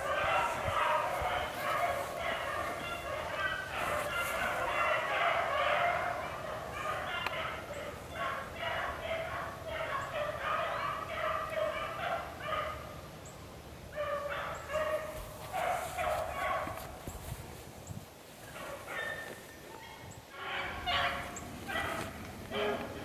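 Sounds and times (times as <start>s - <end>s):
hounds baying: 0.0s - 12.9s, 14.0s - 17.5s, 18.4s - 23.0s.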